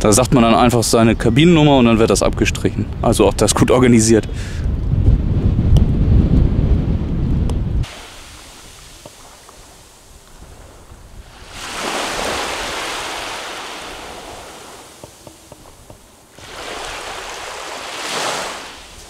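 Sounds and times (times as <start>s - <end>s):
small waves washing on beach: 7.8s - 19.0s.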